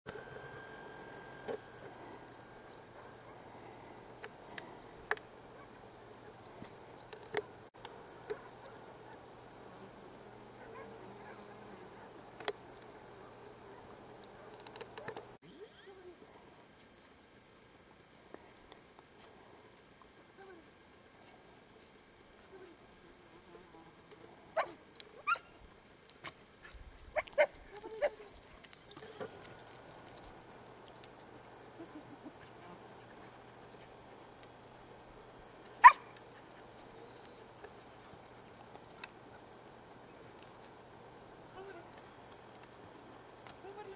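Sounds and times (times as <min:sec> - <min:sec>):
dog barking: 0:08.3 - 0:09.2, 0:10.6 - 0:12.2, 0:24.6 - 0:25.5, 0:35.8 - 0:36.2
dog barking in sharp yelps: 0:24.6 - 0:25.5, 0:35.8 - 0:36.1.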